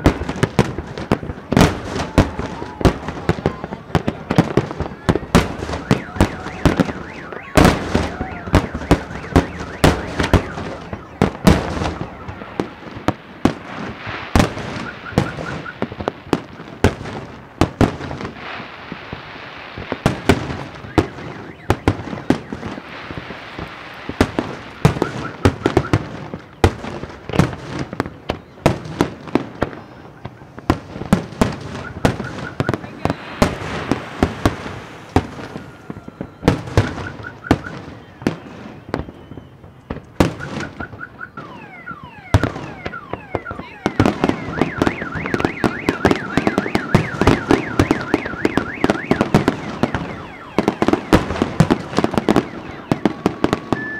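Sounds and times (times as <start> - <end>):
firework crackling: 0.0 - 53.9
firework shells bursting: 30.9 - 39.1.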